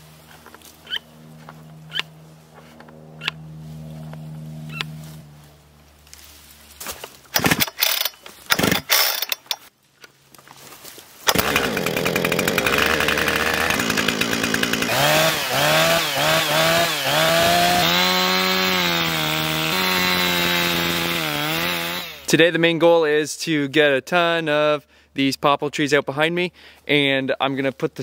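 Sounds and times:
chainsaw cutting log: 6.9s - 9.6s, 11.2s - 22.4s
chainsaw engine revving: 7.3s - 9.6s, 11.2s - 22.4s
starter cord pulls: 7.3s - 9.7s, 11.3s - 14.9s.

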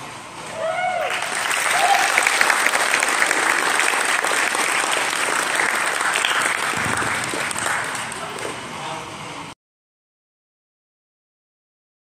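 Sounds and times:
audience applauding: 1.0s - 8.6s.

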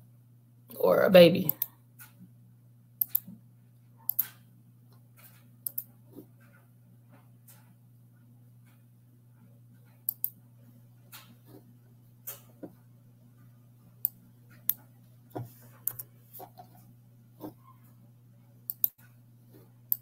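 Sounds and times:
faint steady low hum: 0.0s - 20.0s
computer mouse and key clicks: 1.5s - 2.2s, 3.0s - 3.4s, 4.1s - 6.7s, 9.8s - 10.4s, 14.0s - 14.9s, 15.8s - 16.8s, 18.7s - 19.2s.

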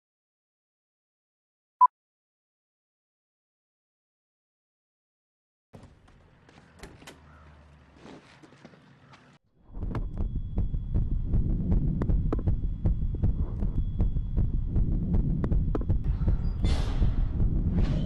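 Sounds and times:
low throbbing hum: 9.6s - 18.0s
pounding heartbeat: 9.8s - 18.0s.

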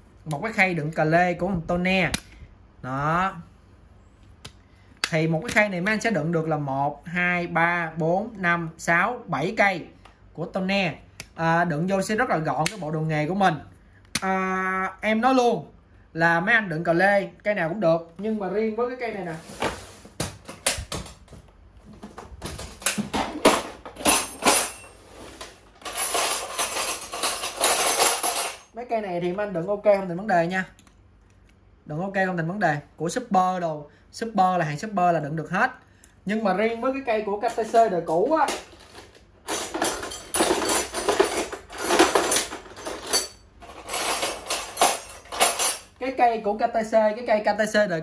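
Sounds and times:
metal wrenches clinking: 23.4s - 25.0s, 25.8s - 28.7s, 37.5s - 46.0s.

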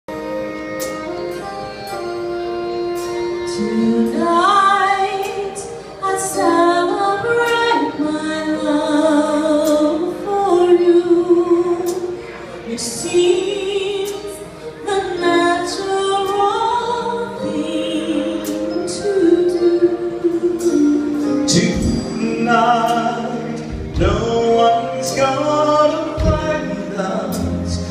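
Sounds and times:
live band playing: 0.1s - 27.9s
woman singing into a microphone: 3.5s - 24.0s.

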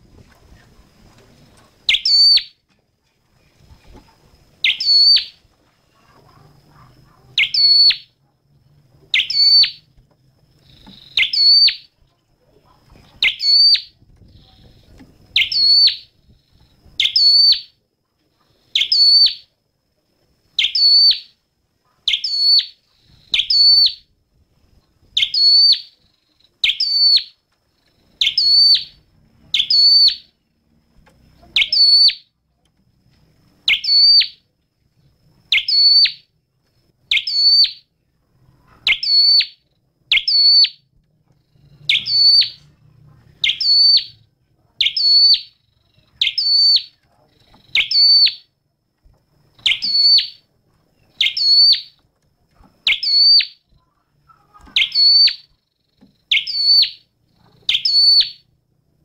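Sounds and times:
bird singing sharp high notes: 4.6s - 5.4s, 7.4s - 8.2s, 9.1s - 9.9s, 10.7s - 11.9s, 29.6s - 30.3s, 41.6s - 42.7s, 43.4s - 44.2s, 46.2s - 47.0s, 49.6s - 50.5s, 54.7s - 55.5s.

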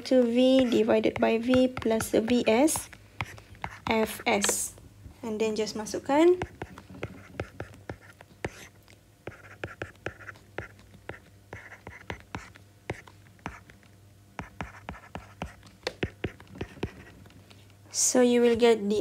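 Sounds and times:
stylus scratchy strokes: 0.0s - 4.7s.

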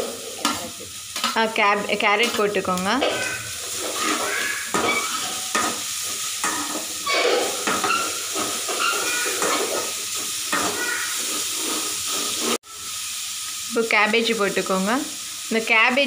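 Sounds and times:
vegetables sizzling in hot oil: 0.0s - 16.0s
metal spatula scraping pan: 2.2s - 12.6s.

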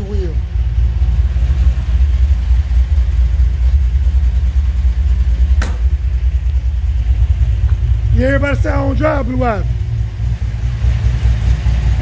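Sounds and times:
car engine idling: 0.0s - 12.0s
sharp click: 5.6s - 5.9s.

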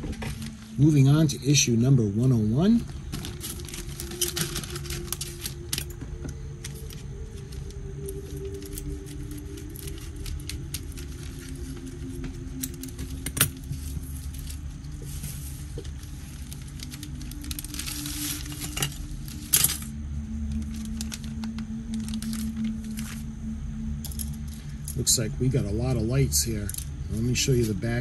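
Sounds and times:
plastic bags crinkling: 0.0s - 1.0s, 2.5s - 25.0s.

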